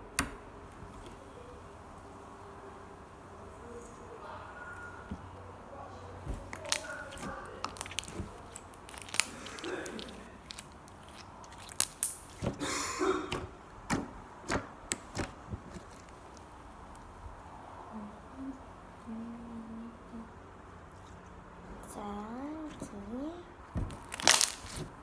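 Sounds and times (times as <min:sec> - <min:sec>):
slime squeezed clicks and pops: 0:24.0 - 0:24.8.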